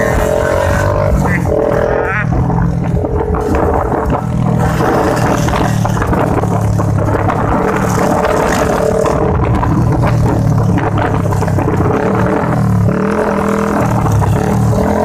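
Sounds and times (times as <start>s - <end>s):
motorcycle engine running: 0.0s - 15.0s
road noise: 0.0s - 15.0s
wind noise on microphone: 0.0s - 15.0s.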